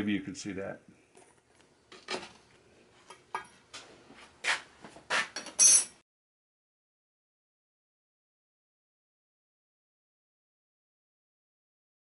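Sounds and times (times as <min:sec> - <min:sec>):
steel parts clanking on workbench: 0:05.3 - 0:06.0.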